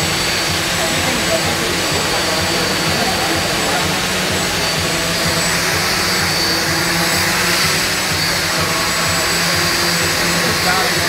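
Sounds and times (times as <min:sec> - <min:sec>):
drone rotors whining: 0:00.0 - 0:11.0.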